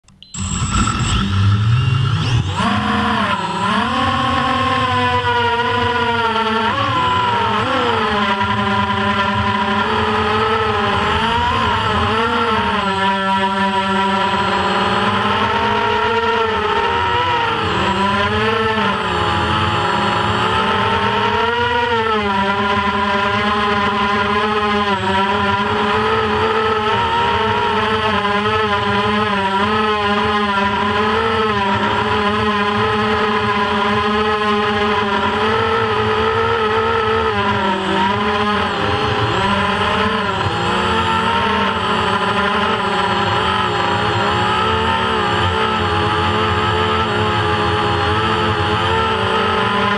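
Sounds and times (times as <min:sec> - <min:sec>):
quadcopter motors whining: 0:00.0 - 0:49.9.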